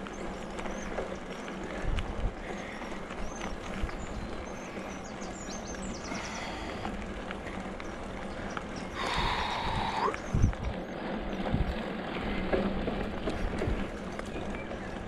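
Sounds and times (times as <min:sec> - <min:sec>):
bike rattling and knocking: 0:00.0 - 0:15.0
tyres crunching on gravel: 0:00.0 - 0:15.0.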